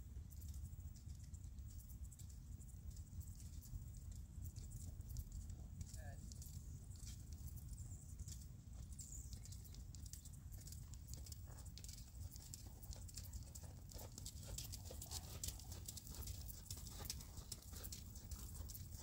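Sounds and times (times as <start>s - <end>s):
horse hooves on sand: 0.2s - 19.0s.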